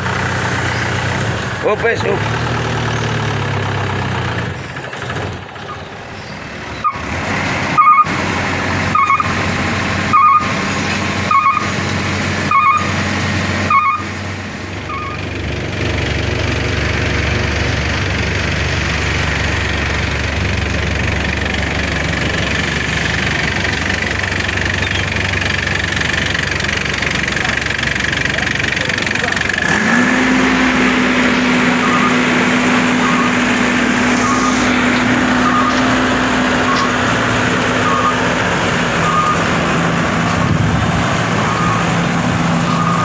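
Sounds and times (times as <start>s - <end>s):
diesel truck engine running: 0.0s - 43.0s
reversing beeper: 7.7s - 8.1s, 8.8s - 9.4s, 10.0s - 13.0s, 13.6s - 14.2s, 14.8s - 15.3s, 31.1s - 39.6s, 41.3s - 43.0s.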